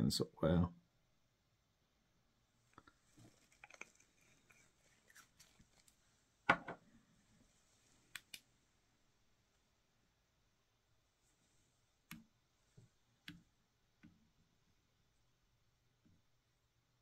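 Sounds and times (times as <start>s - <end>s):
knock: 6.5s - 6.8s.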